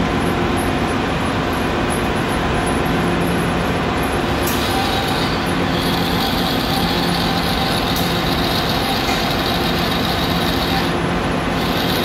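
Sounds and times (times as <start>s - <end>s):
metal lathe humming and hissing: 4.2s - 12.0s.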